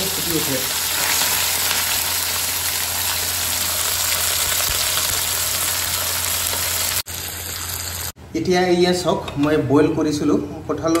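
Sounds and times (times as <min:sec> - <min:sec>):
fish frying in hot oil: 0:00.0 - 0:08.2.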